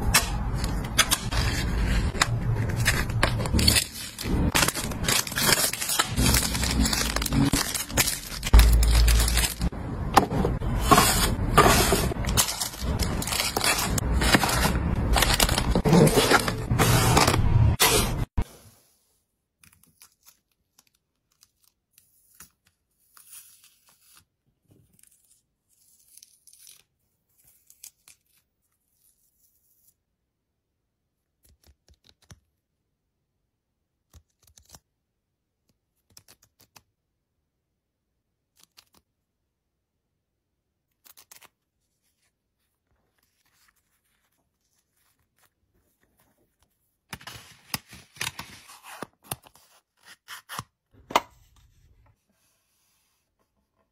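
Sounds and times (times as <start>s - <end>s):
paper crinkling: 0.5s - 9.7s, 10.6s - 18.1s.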